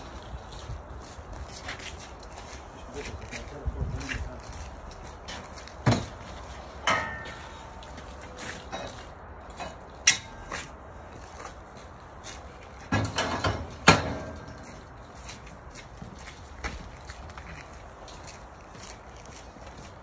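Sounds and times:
metal scaffold tubes clanking: 6.8s - 7.8s, 8.6s - 10.6s, 12.8s - 14.9s.

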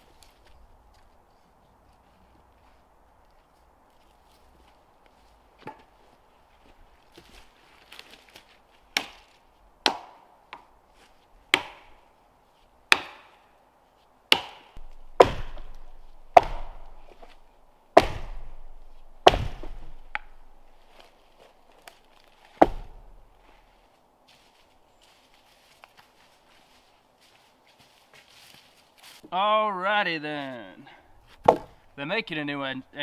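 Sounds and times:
axe chopping wood: 8.9s - 10.7s, 11.5s - 12.0s, 12.9s - 13.4s, 14.3s - 20.7s, 22.5s - 23.3s, 31.4s - 31.8s.

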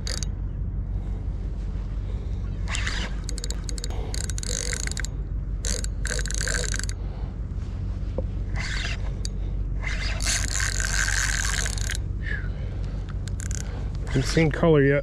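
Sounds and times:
fishing reel ratcheting clicks: 0.0s - 0.3s, 2.6s - 7.0s, 8.5s - 12.0s, 12.8s - 14.6s.

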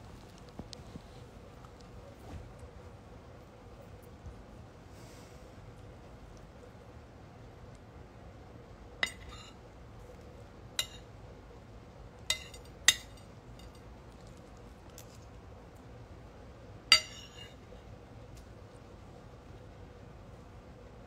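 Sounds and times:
spoon clinking against a plate: 9.0s - 9.6s, 10.8s - 11.1s, 12.3s - 13.8s, 16.9s - 17.6s.

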